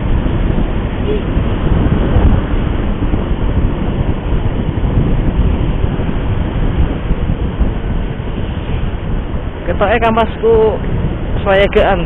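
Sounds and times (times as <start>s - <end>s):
motorcycle engine rumble: 0.0s - 12.0s
road noise: 0.0s - 12.0s
wind rush: 0.0s - 12.0s.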